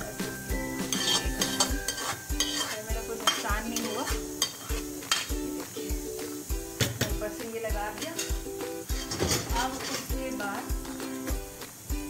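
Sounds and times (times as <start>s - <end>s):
background music with steady beat: 0.0s - 12.0s
metal spatula scraping a pan: 0.7s - 6.4s, 7.8s - 10.6s.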